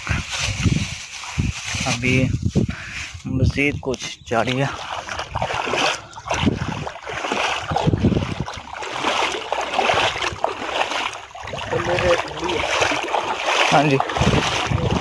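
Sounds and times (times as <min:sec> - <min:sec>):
water sloshing around wading legs: 0:03.9 - 0:15.0.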